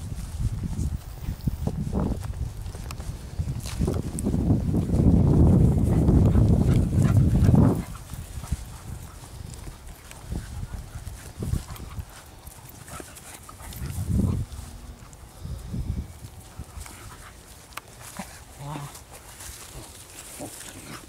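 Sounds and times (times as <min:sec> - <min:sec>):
dogs growling: 0:18.0 - 0:21.0.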